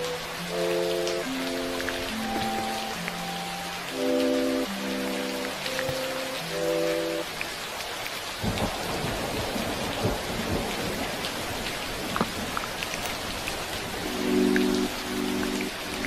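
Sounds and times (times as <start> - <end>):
soft sustained music notes: 0.0 - 7.6, 13.9 - 16.0
steady rain: 0.0 - 16.0
thunder rumbling: 8.4 - 14.3.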